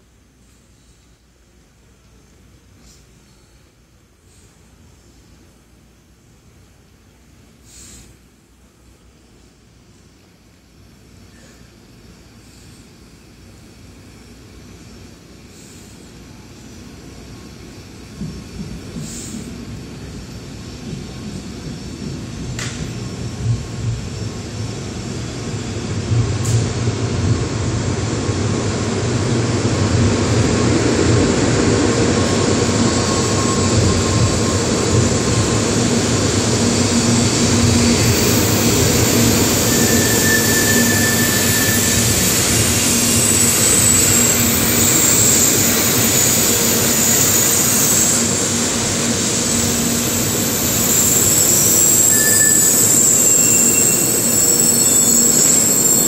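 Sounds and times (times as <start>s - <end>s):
train rolling noise: 0.0s - 56.0s
high-pitched brake squeal: 32.4s - 35.1s, 36.7s - 56.0s.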